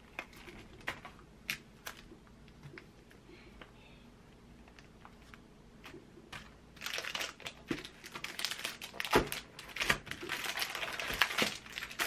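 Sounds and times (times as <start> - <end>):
plastic wrapping crinkling: 6.4 - 12.0.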